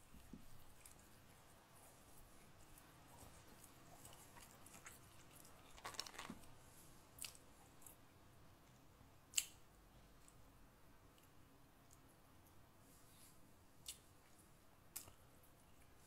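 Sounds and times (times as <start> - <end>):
small rustles and clicks: 2.6 - 6.5.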